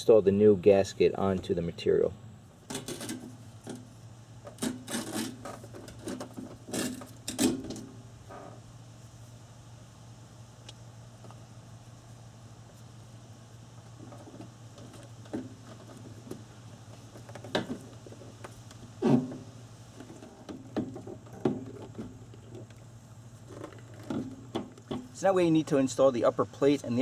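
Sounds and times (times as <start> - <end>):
steady low hum: 0.0 - 27.0
knocks and clicks of parts handled: 23.5 - 25.2.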